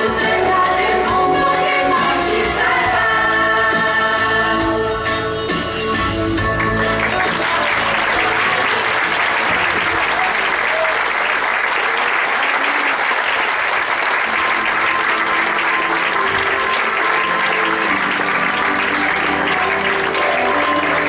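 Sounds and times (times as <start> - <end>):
music playing: 0.0 - 10.7, 13.8 - 21.0
audience applauding: 6.4 - 21.0.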